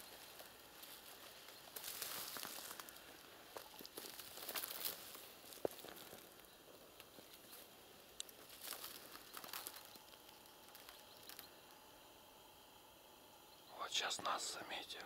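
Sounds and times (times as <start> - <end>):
faint rustling: 0.0 - 11.8.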